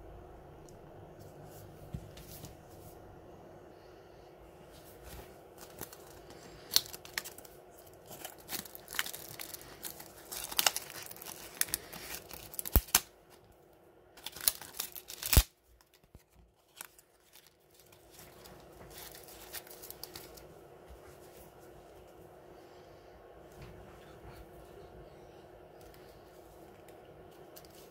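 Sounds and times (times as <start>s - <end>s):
plastic packaging crinkling: 5.1s - 13.4s, 14.2s - 20.5s.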